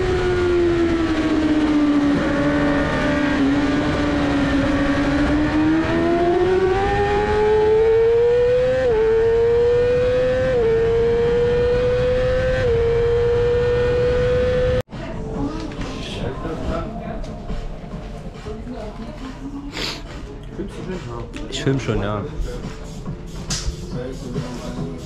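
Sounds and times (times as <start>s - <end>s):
motorcycle engine at full throttle: 0.0s - 14.8s.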